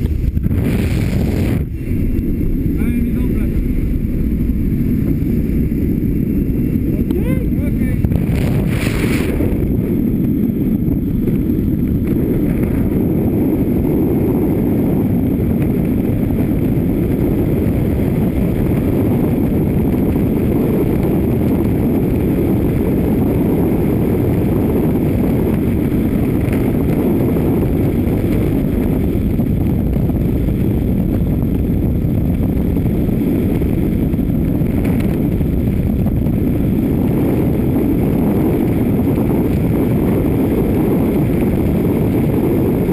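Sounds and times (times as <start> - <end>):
freefall wind roaring on microphone: 0.0 - 42.9.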